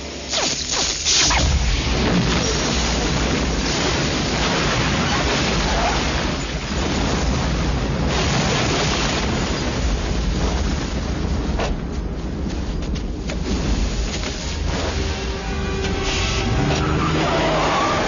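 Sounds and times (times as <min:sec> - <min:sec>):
explosion and fire roar: 0:00.9 - 0:18.0.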